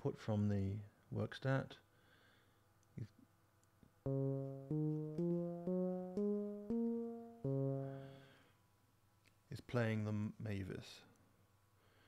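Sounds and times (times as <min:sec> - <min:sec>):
analog synthesizer notes: 0:04.1 - 0:08.2.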